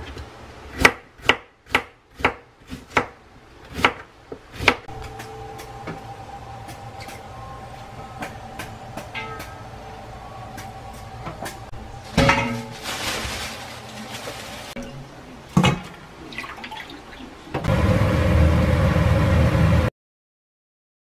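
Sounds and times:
steady low hum: 3.2s - 16.4s.

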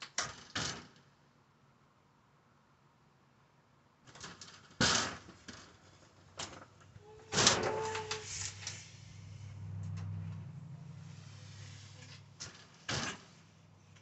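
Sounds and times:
low hum: 7.0s - 12.4s.

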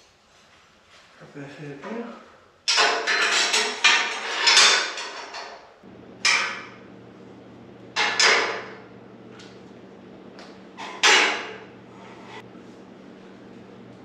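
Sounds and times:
low steady hum: 5.8s - 14.0s
metal clanks on steel tubing: 8.0s - 8.7s.

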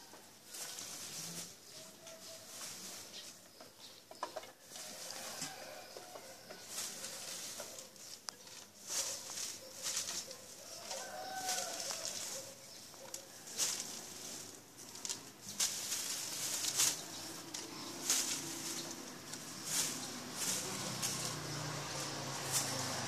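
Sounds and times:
faint rooster crowing: 4.6s - 7.9s, 10.3s - 14.4s
short rustling: 4.6s - 23.0s.

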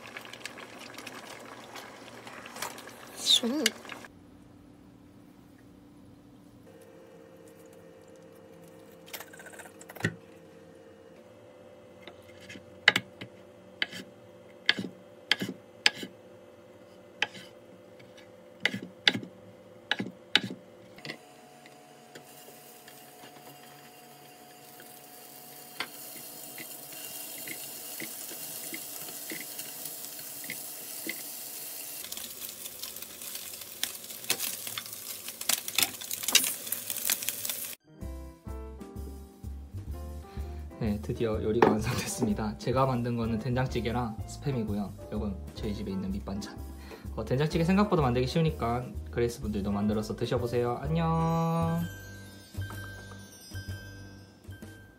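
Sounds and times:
meat sizzling in a frying pan: 0.0s - 4.1s, 22.2s - 37.8s.

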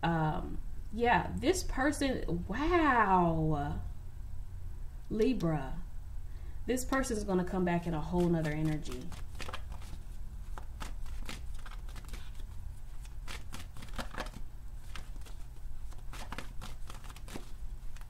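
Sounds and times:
low steady hum: 0.0s - 18.0s
cards being shuffled: 8.0s - 18.0s.

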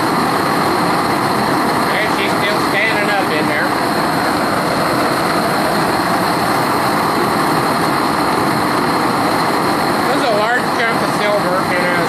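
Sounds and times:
propane torch hissing: 0.0s - 12.0s.

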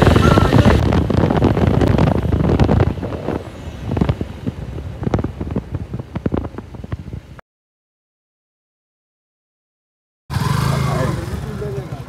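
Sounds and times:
wind buffeting microphone: 0.0s - 7.4s
motorcycle running: 10.3s - 12.0s.

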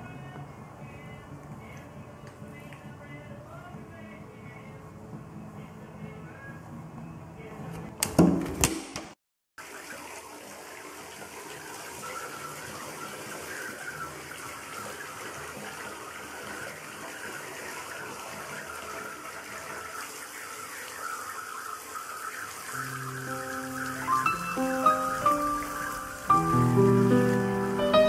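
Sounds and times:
music: 0.0s - 7.9s, 22.8s - 28.0s
water running into a bathtub: 9.6s - 28.0s.

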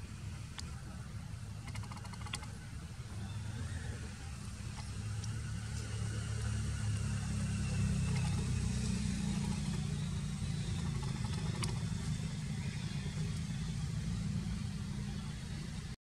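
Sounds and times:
engine rumbling: 0.0s - 16.0s
faint clicks: 1.6s - 2.5s, 10.8s - 11.9s.

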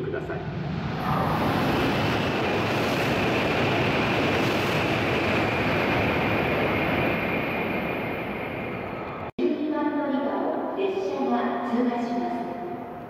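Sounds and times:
high-speed train passing: 0.0s - 9.3s.

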